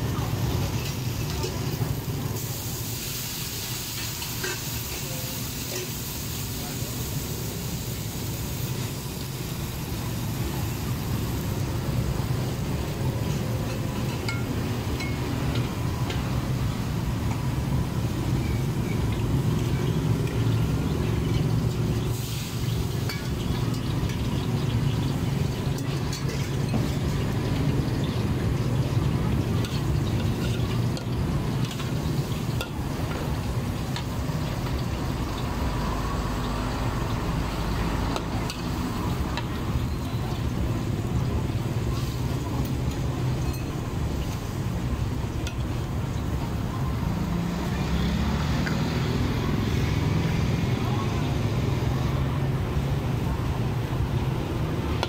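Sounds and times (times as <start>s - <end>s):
metal spatula scraping wok: 3.9s - 5.0s.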